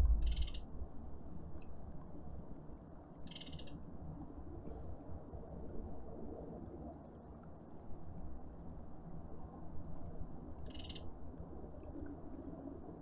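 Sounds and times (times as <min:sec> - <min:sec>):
low background rumble: 0:00.0 - 0:01.2.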